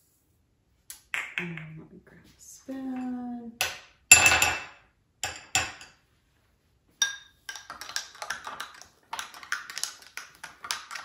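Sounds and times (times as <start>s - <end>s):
spoon stirring in glass jar: 7.0s - 11.0s.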